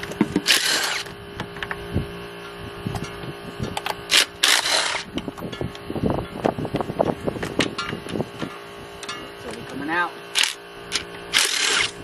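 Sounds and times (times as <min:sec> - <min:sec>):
steady hum: 0:00.0 - 0:12.0
metal tools clicking on engine: 0:02.4 - 0:12.0.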